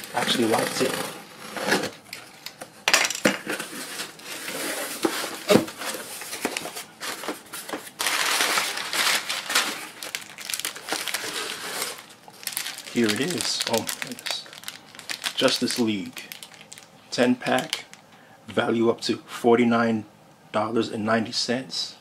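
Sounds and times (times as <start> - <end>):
packing paper crumpling: 5.6 - 18.0.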